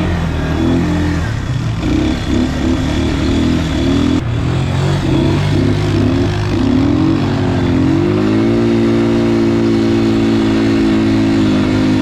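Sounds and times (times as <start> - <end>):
quad bike engine revving: 0.0 - 12.0.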